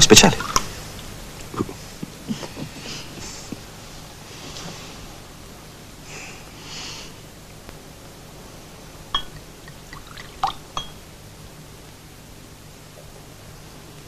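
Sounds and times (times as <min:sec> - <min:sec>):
soft breathy sounds: 0:00.4 - 0:07.3
wine glasses clinking: 0:09.2 - 0:11.0.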